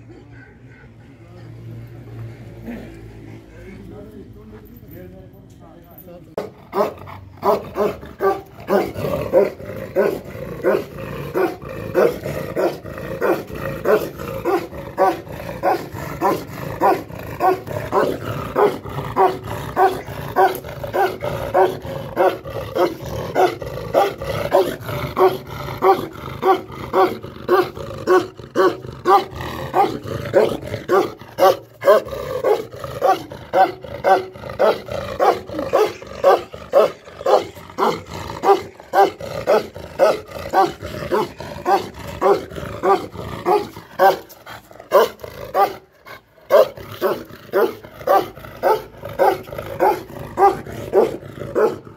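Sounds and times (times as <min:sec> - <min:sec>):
dog growling low: 0:02.6 - 0:04.0, 0:06.5 - 0:51.9
dog barking deeply: 0:06.4 - 0:51.9.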